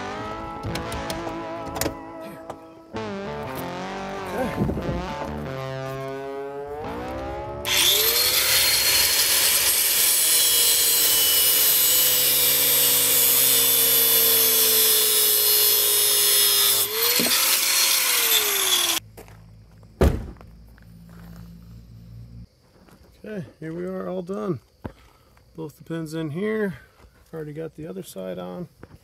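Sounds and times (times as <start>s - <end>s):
angle grinder grinding metal: 6.8s - 19.0s.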